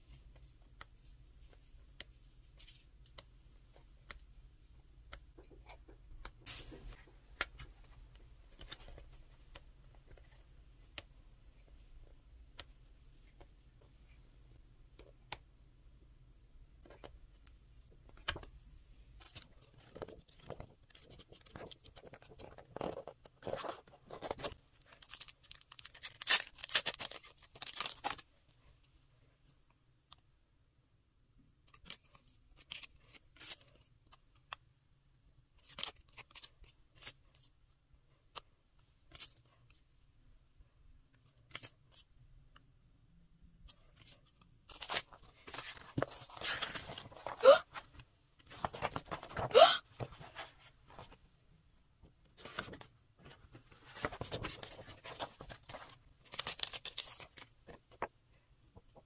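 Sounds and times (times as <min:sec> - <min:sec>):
paper rustling and crinkling: 0:19.2 - 0:28.2, 0:43.7 - 0:51.2, 0:52.4 - 0:58.1.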